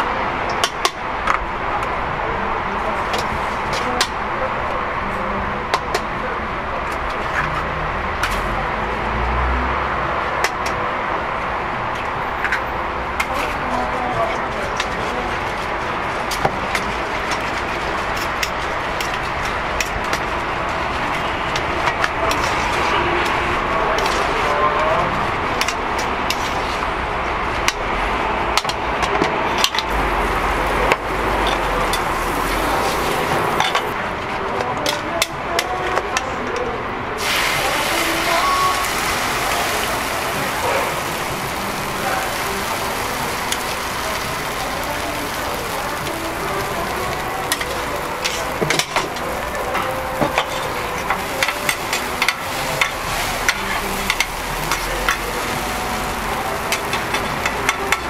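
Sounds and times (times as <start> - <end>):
street background with voices: 0.0 - 58.0
sizzling on a hot griddle: 29.7 - 33.9, 37.2 - 58.0.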